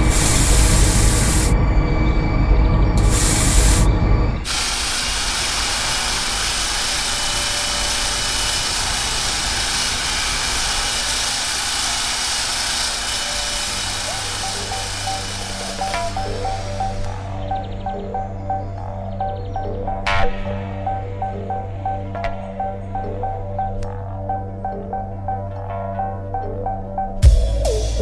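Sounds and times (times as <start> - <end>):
electric drill hissing: 0.0 - 1.6, 3.0 - 17.2
abrasive wheel grinding metal: 0.0 - 17.2.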